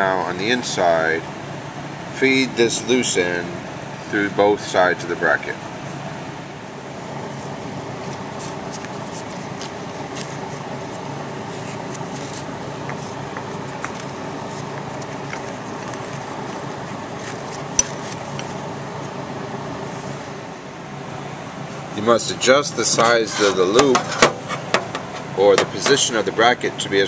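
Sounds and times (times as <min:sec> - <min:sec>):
steady mechanical hum: 0:00.0 - 0:27.0.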